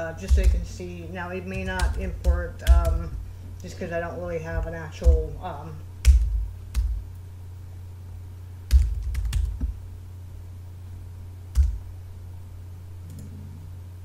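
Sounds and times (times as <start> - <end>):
low hum: 0.0 - 14.0
computer keyboard keystrokes: 1.5 - 3.0, 6.0 - 7.0, 8.7 - 9.7.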